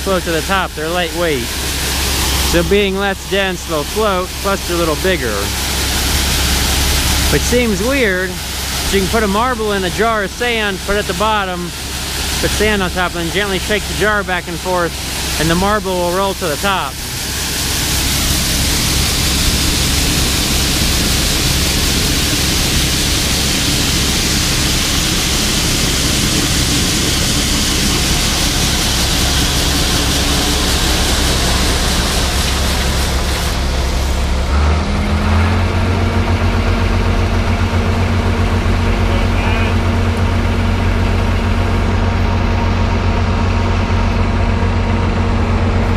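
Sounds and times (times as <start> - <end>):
grain pouring into wagon: 0.0 - 34.5
combine engine drone: 0.0 - 45.9.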